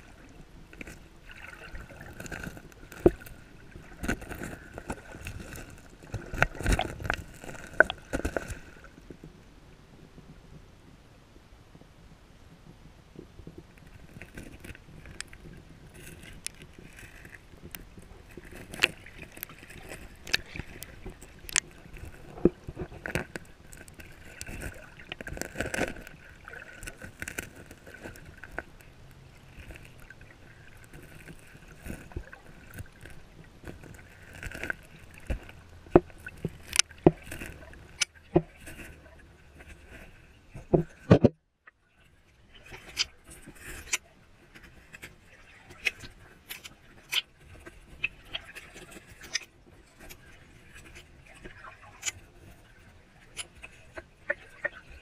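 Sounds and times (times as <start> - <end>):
muffled underwater water rush: 0.0 - 55.0
underwater clicks and knocks: 0.7 - 9.4, 12.7 - 41.8.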